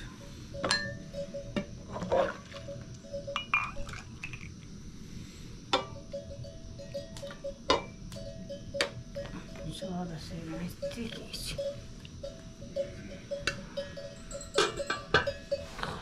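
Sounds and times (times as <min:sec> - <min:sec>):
scoop clinking against metal pot: 0:03.3 - 0:04.5, 0:14.4 - 0:15.4.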